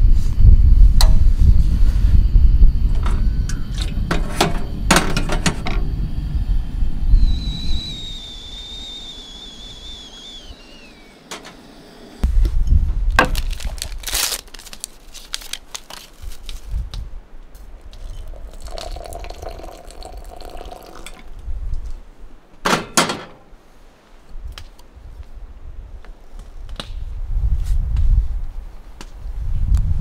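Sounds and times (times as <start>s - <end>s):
wind rumble on microphone: 0.0s - 10.6s, 12.2s - 14.3s, 16.1s - 22.3s, 24.3s - 30.0s
paper packet tearing: 13.2s - 16.6s
water pouring into jar: 17.9s - 21.3s.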